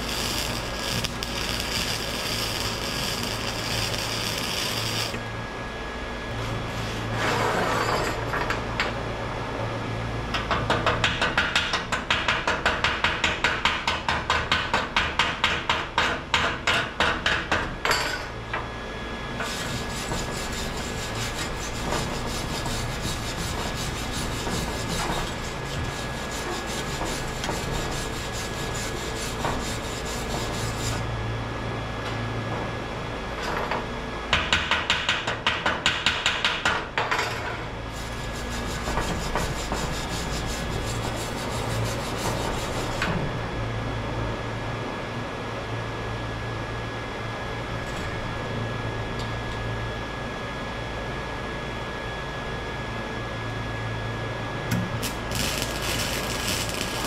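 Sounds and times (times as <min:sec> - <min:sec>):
wire brush scraping steel pipe: 0:00.0 - 0:05.2, 0:19.4 - 0:31.0, 0:37.9 - 0:43.0, 0:55.0 - 0:57.0.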